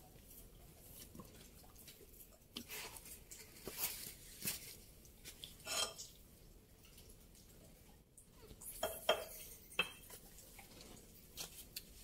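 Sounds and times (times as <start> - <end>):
rustling scrape: 2.7 - 4.8.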